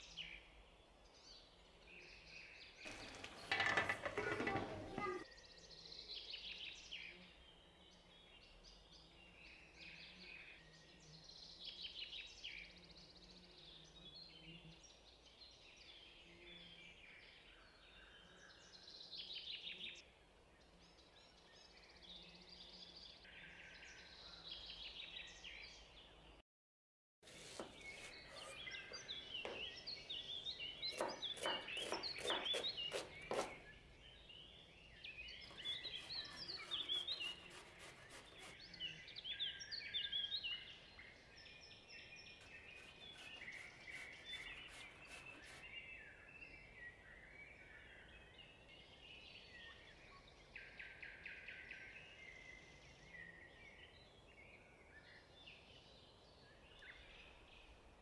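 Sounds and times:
birds chirping and singing: 0:01.2 - 0:07.2, 0:27.4 - 0:54.3
knife chopping on wooden board: 0:27.3 - 0:29.8, 0:30.4 - 0:33.7, 0:35.5 - 0:38.6, 0:42.4 - 0:45.7.

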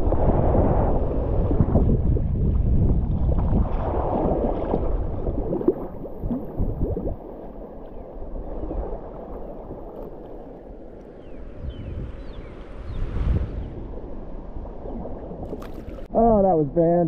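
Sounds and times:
water gurgling: 0:00.0 - 0:11.0, 0:13.9 - 0:16.4
wind rumble on microphone: 0:00.0 - 0:16.4
paddle strokes splashing: 0:14.9 - 0:16.1.

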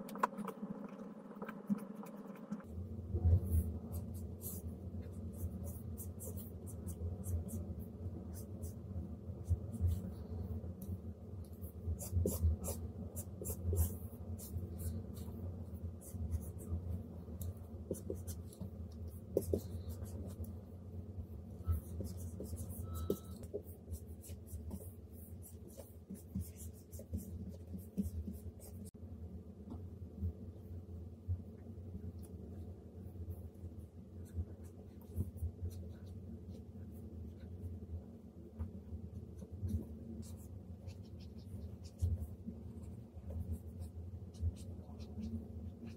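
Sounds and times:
stylus scratching on screen: 0:00.0 - 0:08.8, 0:21.6 - 0:28.9, 0:39.2 - 0:45.9
steady low hum: 0:00.0 - 0:45.9.

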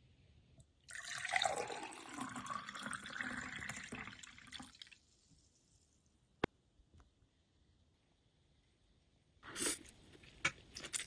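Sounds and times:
drink pouring into a glass: 0:00.9 - 0:05.0.

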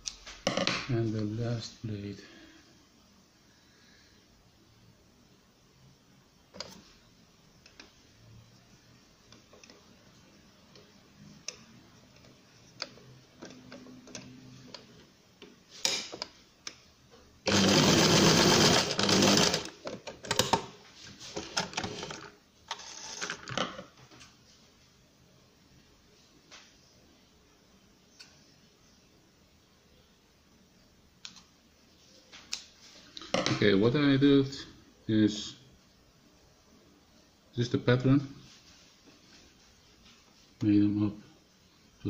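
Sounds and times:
sewing machine stitching: 0:17.5 - 0:20.5.

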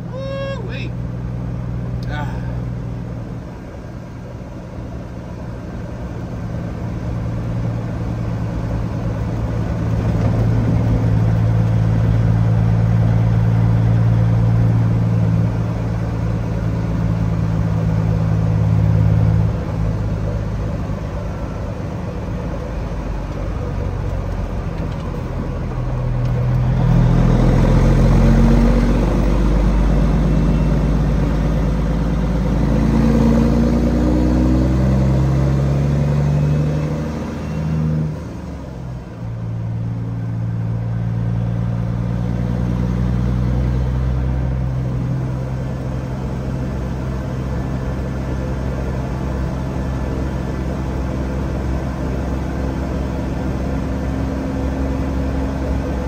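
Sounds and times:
diesel truck engine: 0:00.0 - 0:56.0.

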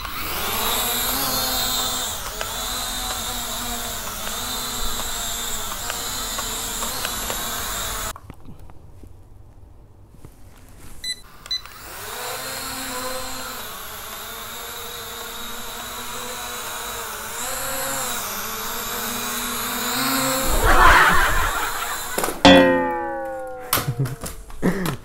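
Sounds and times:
drone propellers whirring: 0:11.7 - 0:23.6
loud rough burst of noise: 0:20.2 - 0:22.4.

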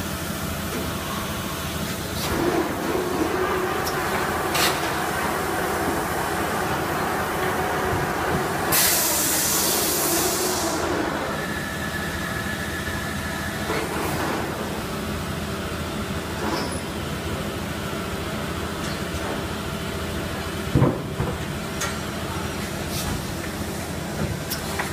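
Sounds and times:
loud hiss: 0:08.5 - 0:13.6.

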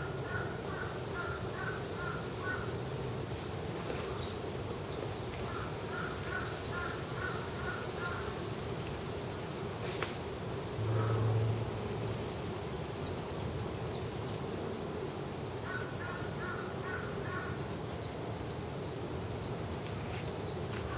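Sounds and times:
crow cawing: 0:00.2 - 0:02.7, 0:05.5 - 0:08.3, 0:15.7 - 0:17.5
steady low hum: 0:10.3 - 0:15.6
louder low hum: 0:10.7 - 0:12.5.

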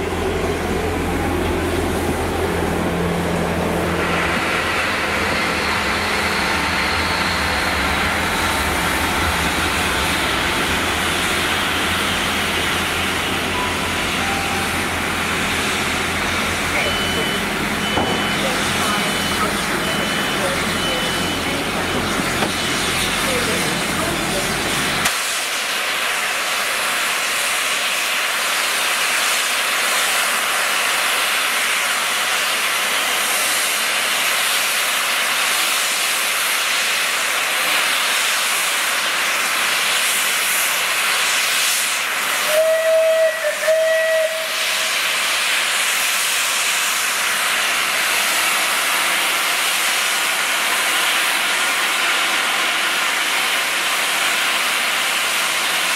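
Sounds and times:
locomotive steam hissing: 0:00.0 - 0:55.9
steam whistle toots: 0:41.3 - 0:47.0.

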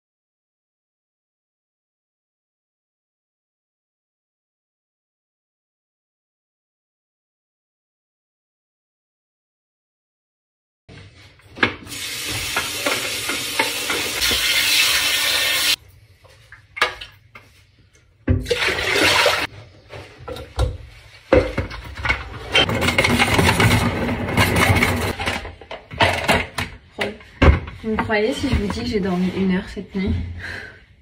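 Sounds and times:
tap water running: 0:11.6 - 0:17.2, 0:18.3 - 0:19.5.

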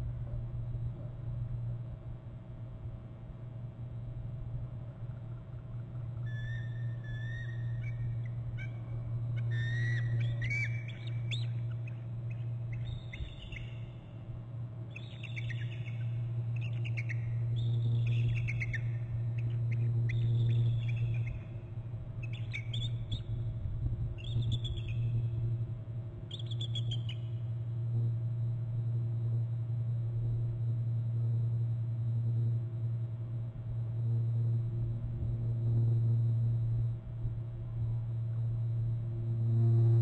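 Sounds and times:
steady low hum: 0:00.0 - 0:40.0
eagles trilling: 0:06.3 - 0:13.9.

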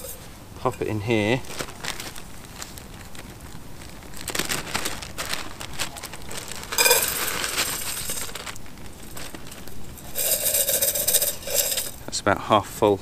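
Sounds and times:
dry food rattling in metal pot: 0:00.0 - 0:01.9, 0:04.5 - 0:12.0
plastic bag crinkling: 0:00.0 - 0:12.0.

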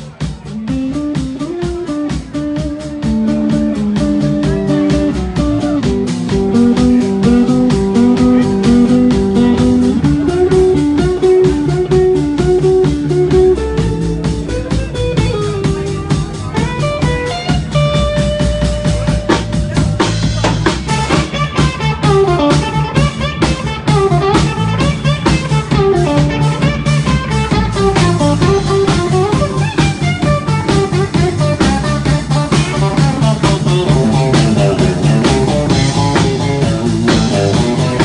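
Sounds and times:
drum kit beat: 0:00.0 - 0:38.0
electric bass: 0:00.0 - 0:38.0
electric guitar lead: 0:00.0 - 0:38.0.

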